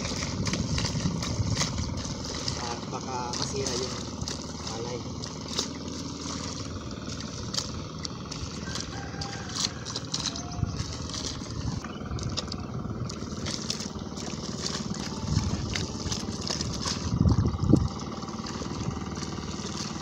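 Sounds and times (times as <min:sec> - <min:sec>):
low rumbles: 0:00.0 - 0:20.0
mud and water sloshing: 0:00.0 - 0:20.0.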